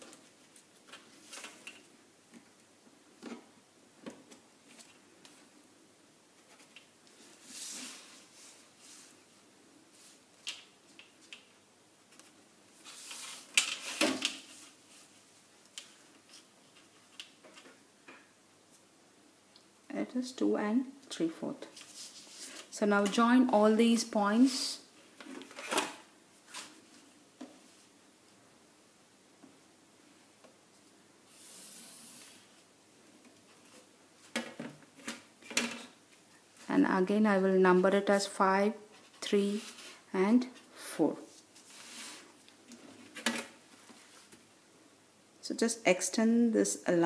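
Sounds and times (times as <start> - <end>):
paper rustling slide: 7.2 - 9.2, 41.3 - 42.4
marker hissing across paper: 31.3 - 32.6.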